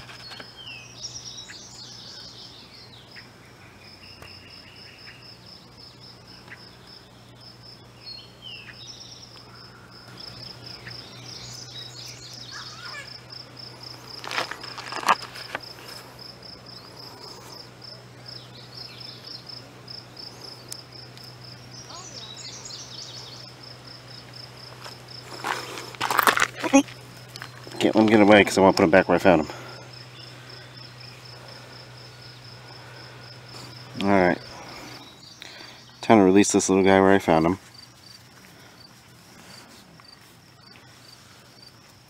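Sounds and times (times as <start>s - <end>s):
insect trilling: 0.0s - 42.0s
short bird calls: 8.0s - 13.3s.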